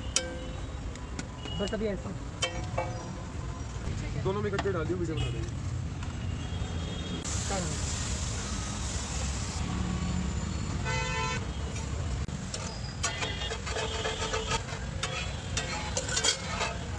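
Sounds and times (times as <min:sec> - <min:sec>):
street noise: 0:00.0 - 0:16.9
hiss: 0:07.3 - 0:09.6
vehicle horn honk: 0:10.8 - 0:11.4.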